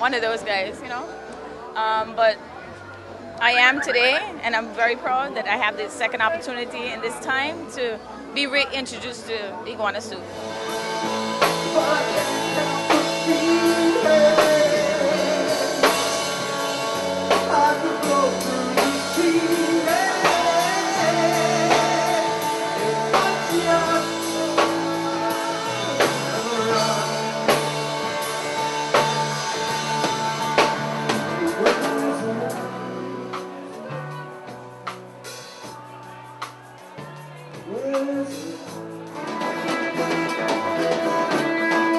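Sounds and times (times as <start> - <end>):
rock band playing live: 0.0 - 41.9
male lead vocal: 11.4 - 34.2, 37.5 - 41.9.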